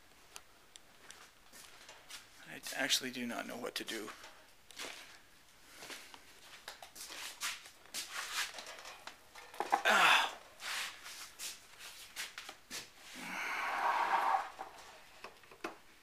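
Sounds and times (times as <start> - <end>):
man breathing and sighing: 9.7 - 10.6, 13.0 - 14.1.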